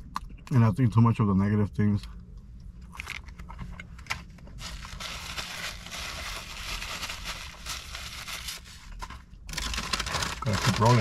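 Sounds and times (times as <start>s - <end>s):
food packaging crinkling: 4.6s - 11.0s.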